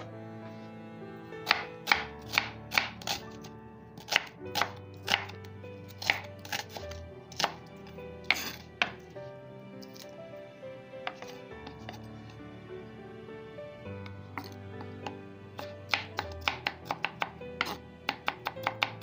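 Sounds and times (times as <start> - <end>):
background music: 0.0 - 19.0
knife chopping on wooden board: 1.4 - 3.3, 4.0 - 5.4, 6.0 - 7.6, 8.2 - 9.0, 14.4 - 19.0.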